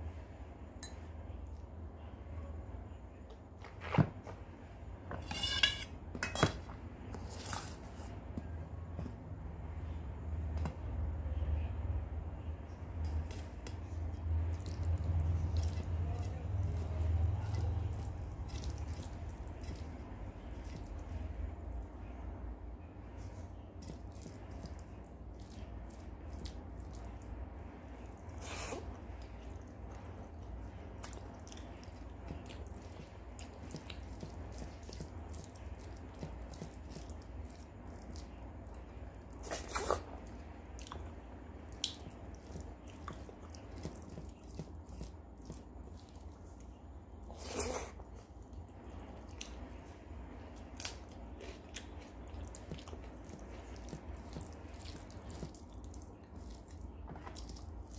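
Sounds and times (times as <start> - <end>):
steady low hum: 0.0 - 57.9
wet squishing of food: 12.8 - 22.6, 23.3 - 57.9.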